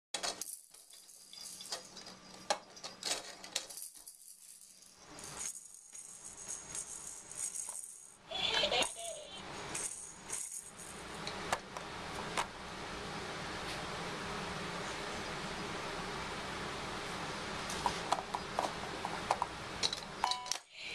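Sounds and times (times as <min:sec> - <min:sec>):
plastic toys clicking and clattering: 0:00.2 - 0:11.7, 0:18.1 - 0:20.7
bead spinner rattling: 0:00.3 - 0:08.2, 0:09.6 - 0:11.2.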